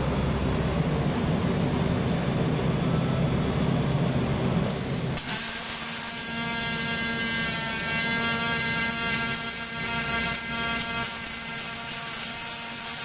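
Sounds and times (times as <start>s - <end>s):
welding arc buzzing: 4.7s - 13.0s.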